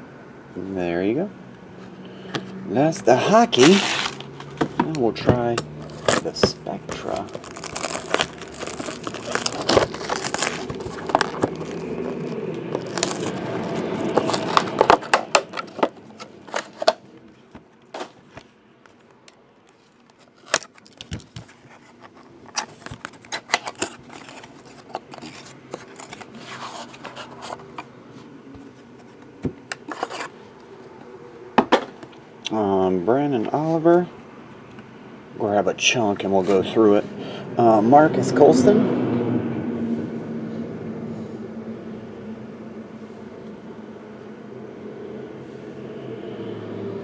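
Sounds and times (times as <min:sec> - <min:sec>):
plastic shrink wrap crinkling: 0:03.3 - 0:04.4, 0:05.8 - 0:17.0, 0:18.9 - 0:27.8
cardboard box clicks and scrapes: 0:03.5 - 0:04.3, 0:05.8 - 0:17.0.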